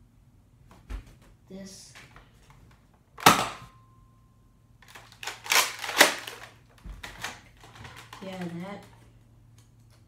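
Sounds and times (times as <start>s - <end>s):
plastic mechanism clacks and rattles: 4.8s - 9.1s.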